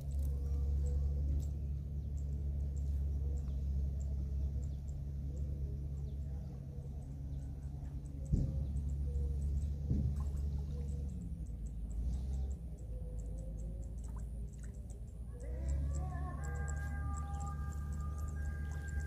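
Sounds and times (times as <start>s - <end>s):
faint high-pitched chirps: 0.0s - 19.0s
low steady rumble: 0.0s - 19.0s.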